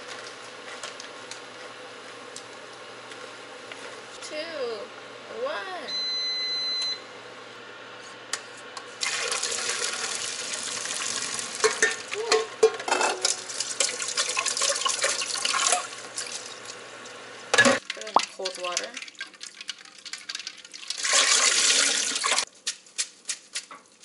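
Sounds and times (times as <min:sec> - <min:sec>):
water gushing into sink: 0:09.0 - 0:11.8, 0:13.2 - 0:16.8, 0:17.8 - 0:22.5
strainer and bowl clattering: 0:11.6 - 0:15.9.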